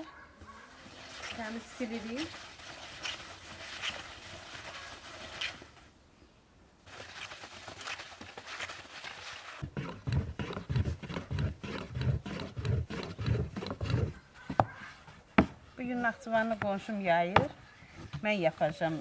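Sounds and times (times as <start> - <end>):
wet cloth scraping and hissing: 0.5 - 6.0, 6.8 - 9.6.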